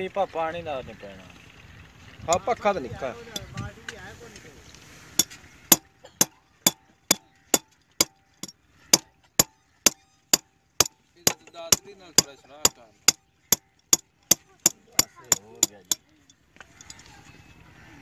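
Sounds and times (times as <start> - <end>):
hand hammer striking metal: 3.4 - 3.6, 5.2 - 16.1.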